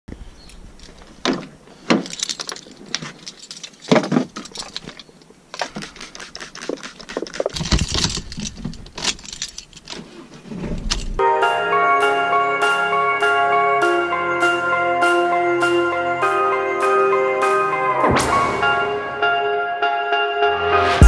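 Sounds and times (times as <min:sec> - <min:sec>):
keys jangling: 0:01.8 - 0:10.0.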